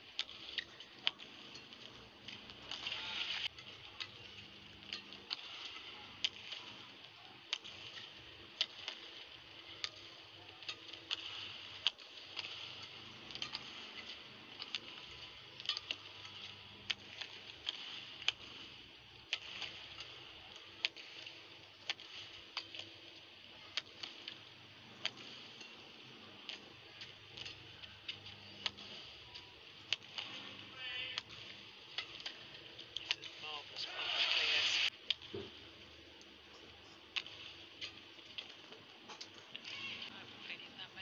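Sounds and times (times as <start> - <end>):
arena hiss: 33.8 - 34.9.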